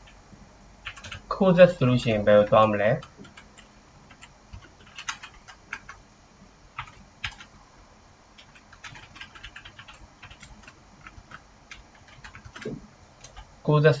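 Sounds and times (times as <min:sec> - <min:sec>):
typing on computer keyboard: 0:00.8 - 0:01.2, 0:02.6 - 0:06.0, 0:06.8 - 0:07.5, 0:08.4 - 0:13.4.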